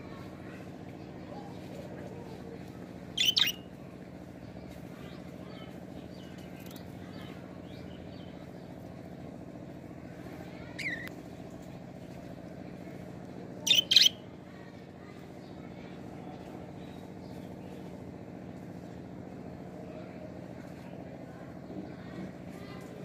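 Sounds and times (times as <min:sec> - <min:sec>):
steady low hum: 0:00.0 - 0:23.0
budgerigar high-pitched calls: 0:03.2 - 0:03.6, 0:13.6 - 0:14.2
soft budgerigar chattering: 0:03.2 - 0:03.6, 0:13.6 - 0:14.2.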